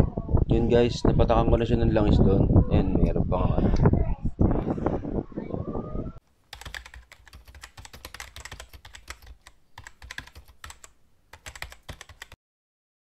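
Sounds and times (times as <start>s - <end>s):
computer keyboard typing: 6.5s - 12.4s.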